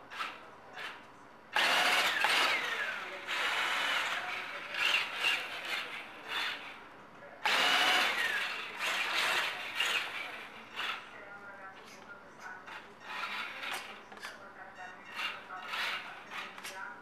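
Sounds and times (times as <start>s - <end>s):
toy car motor and gears whining: 0.1s - 1.0s, 1.6s - 6.8s, 7.4s - 11.1s, 12.7s - 14.3s, 15.1s - 16.8s.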